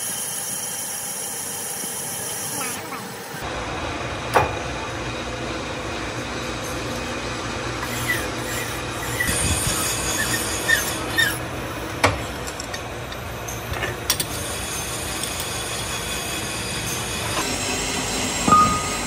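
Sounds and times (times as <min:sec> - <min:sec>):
lathe running: 0:00.0 - 0:19.0
file scraping spinning metal: 0:05.8 - 0:13.7.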